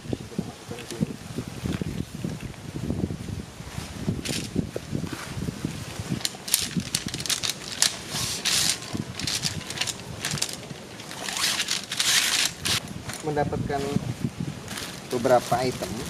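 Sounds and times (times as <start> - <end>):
fabric rustling and scraping: 1.4 - 16.0
poles knocking and clacking: 6.2 - 13.3.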